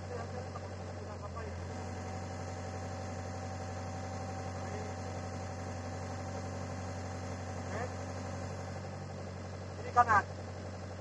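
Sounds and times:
diesel engine droning: 0.0 - 11.0.

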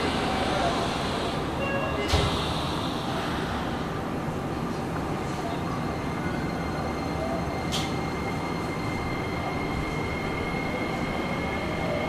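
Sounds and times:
train cabin rumble and hum: 7.1 - 12.0.

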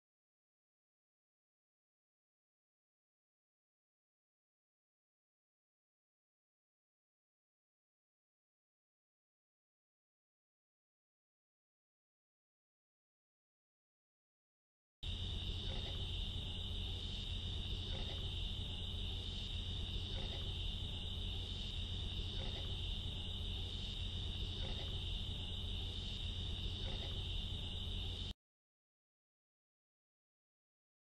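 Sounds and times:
insect chorus trilling: 15.0 - 28.4
low steady hum: 15.0 - 28.4.

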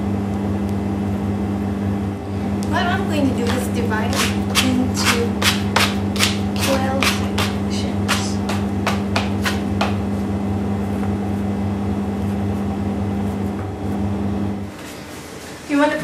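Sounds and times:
loud steady low hum: 0.0 - 16.0
dough scraper tapping on table: 3.4 - 10.0.

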